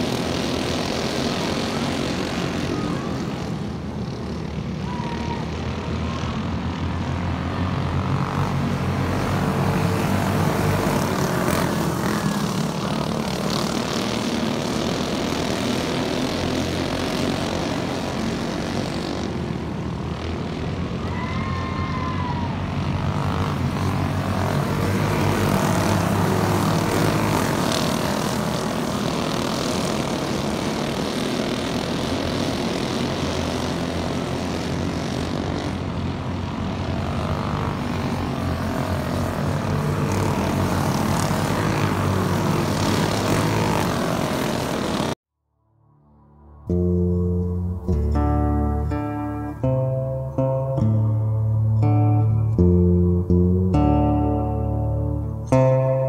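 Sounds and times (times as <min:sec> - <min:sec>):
racing kart engines: 0:00.0 - 0:45.2.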